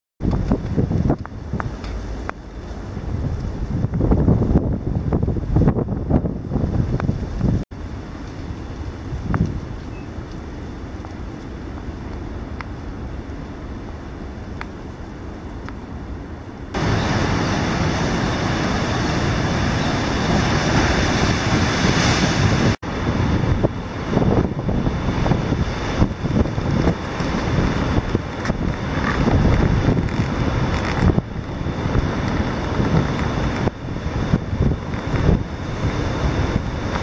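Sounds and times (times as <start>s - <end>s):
wind buffeting microphone: 0.2s - 13.6s, 16.7s - 37.0s
surf breaking on rocks: 16.8s - 37.0s.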